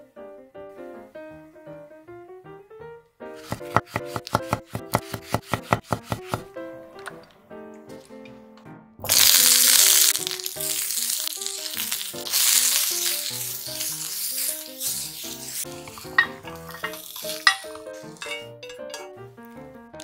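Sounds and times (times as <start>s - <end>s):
light background music: 0.1s - 20.0s
vegetables sizzling in oil: 9.0s - 18.3s.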